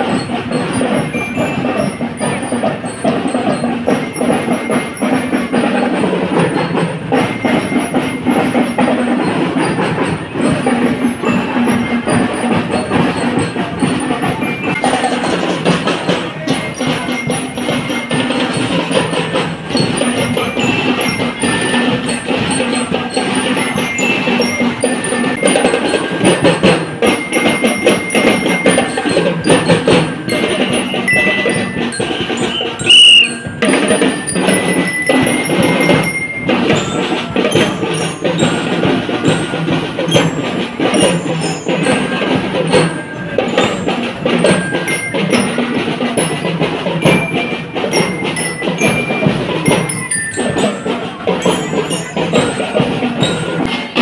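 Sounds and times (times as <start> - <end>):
bell lyres playing tune: 0.0 - 54.0
rapid drum beat: 0.0 - 54.0
loud high-pitched tone: 32.4 - 33.5.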